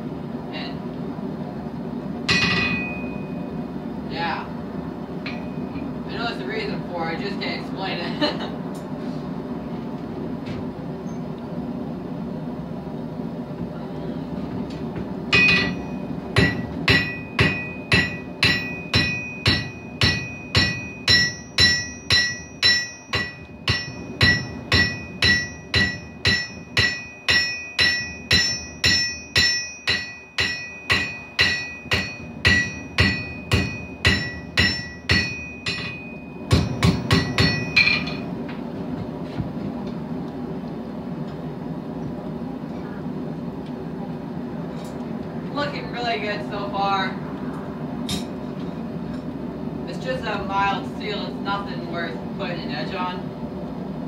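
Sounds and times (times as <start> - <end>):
hammer ringing on anvil: 2.3 - 3.4, 5.3 - 5.9, 15.3 - 38.3.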